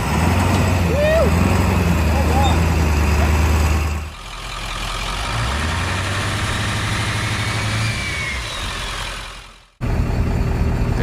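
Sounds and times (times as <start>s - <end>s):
vehicle engine running: 8.5s - 11.0s.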